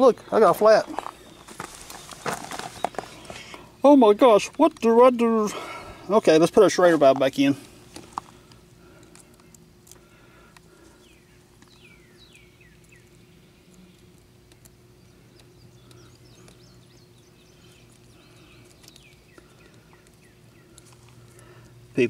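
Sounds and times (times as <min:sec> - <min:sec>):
low steady hum: 0:00.0 - 0:22.0
bird chirping: 0:00.8 - 0:04.8, 0:10.9 - 0:21.8.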